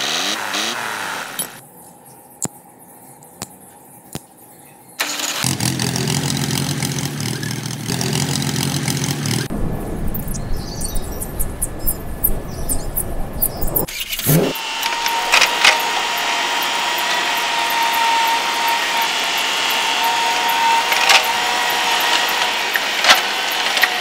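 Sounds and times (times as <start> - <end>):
tractor engine throbbing: 5.0 - 24.0
sharp clicks: 10.1 - 24.0.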